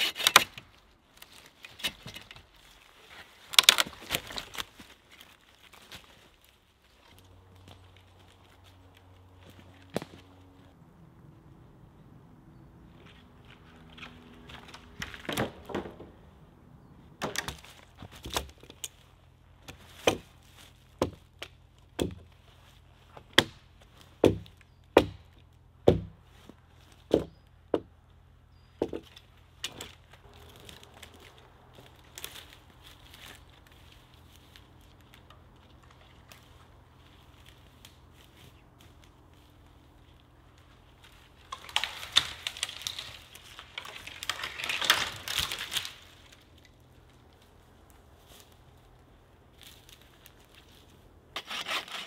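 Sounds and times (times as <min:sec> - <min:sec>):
wooden clatter: 0:13.9 - 0:16.3
axe chopping wood: 0:19.7 - 0:20.3, 0:21.0 - 0:22.3, 0:23.3 - 0:26.2, 0:27.1 - 0:27.9.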